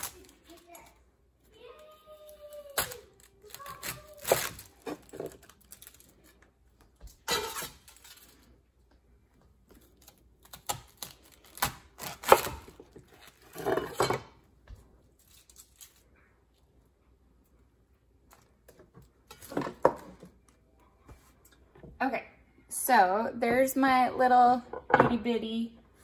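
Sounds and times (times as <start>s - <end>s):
knife crunching through cabbage: 9.8s - 14.0s.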